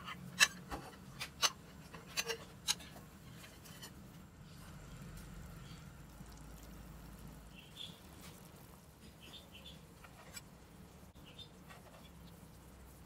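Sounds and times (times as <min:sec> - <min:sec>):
water bubbling faintly: 0:04.7 - 0:13.0.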